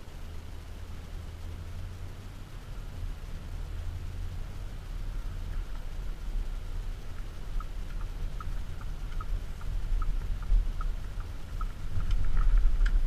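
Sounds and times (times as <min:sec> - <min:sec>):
diesel engine rumble: 0:00.0 - 0:13.0
road noise: 0:00.0 - 0:13.0
turn signal ticking: 0:00.0 - 0:13.0.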